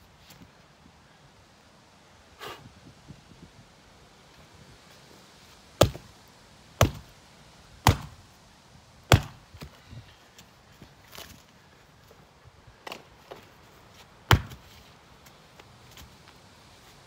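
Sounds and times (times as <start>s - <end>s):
axe chopping wood: 5.8s - 6.1s, 6.8s - 7.1s, 7.8s - 8.2s, 9.1s - 9.5s, 14.3s - 14.7s.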